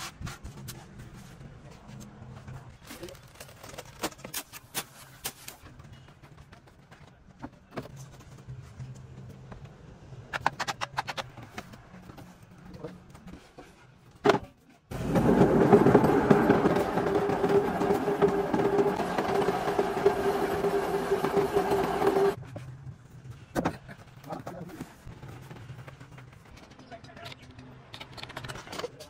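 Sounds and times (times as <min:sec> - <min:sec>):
machinery droning: 0:14.9 - 0:22.4.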